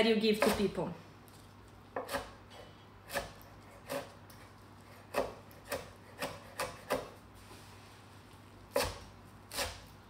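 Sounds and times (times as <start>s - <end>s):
knife chopping on wooden board: 0.4s - 0.7s, 1.9s - 2.4s, 3.0s - 7.2s, 8.7s - 9.9s.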